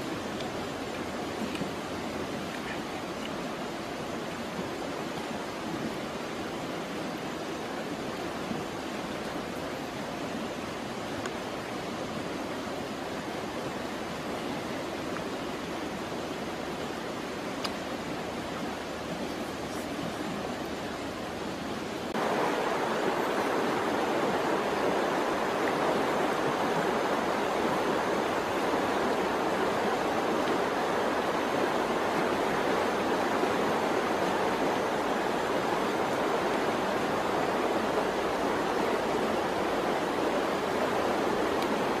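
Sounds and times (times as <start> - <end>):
steady rushing noise: 18.8 - 42.0.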